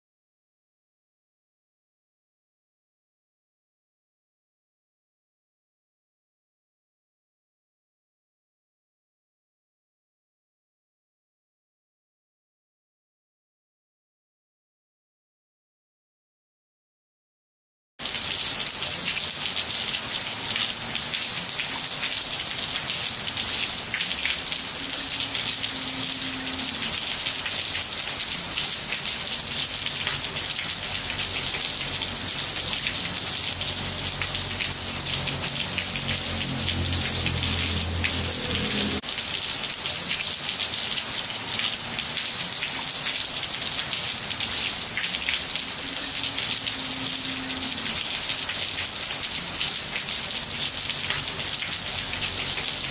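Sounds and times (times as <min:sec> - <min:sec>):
rain splashing on tiles: 0:18.0 - 0:52.9.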